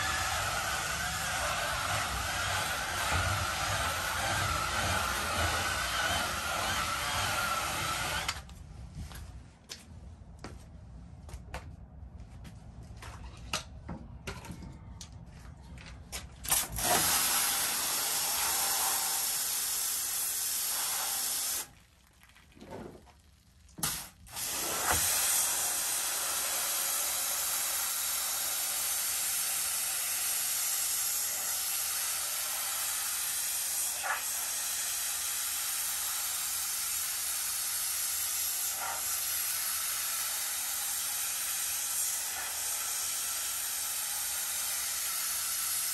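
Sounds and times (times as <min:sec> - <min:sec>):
pressure washer spraying: 0:00.0 - 0:08.3, 0:16.5 - 0:21.7, 0:23.8 - 0:45.9.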